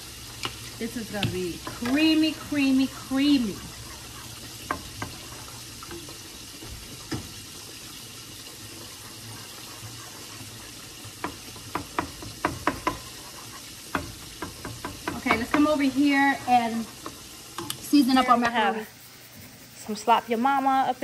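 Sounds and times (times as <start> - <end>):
steady hiss: 0.0 - 21.0
wooden spoon knocking metal pot: 11.0 - 13.2, 13.9 - 16.0.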